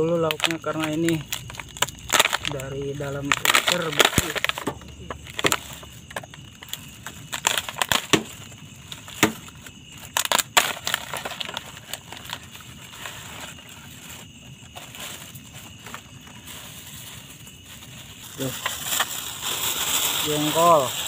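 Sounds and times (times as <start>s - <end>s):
frozen food crunching and cracking: 0.0s - 16.4s.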